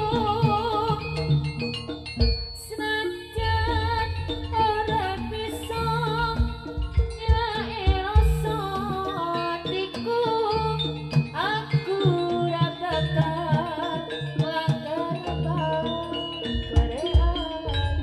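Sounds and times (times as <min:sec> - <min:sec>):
held gong-like tones: 0:00.0 - 0:09.4
hand drum beats: 0:00.0 - 0:18.0
wavering lead melody: 0:00.0 - 0:18.0.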